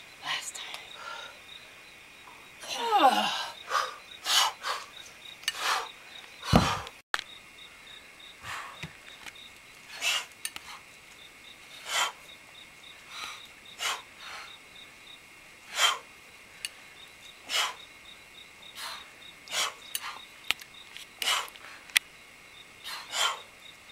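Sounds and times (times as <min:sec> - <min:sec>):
insect chirring: 0:00.0 - 0:23.9
forceful exhalations: 0:05.6 - 0:07.0.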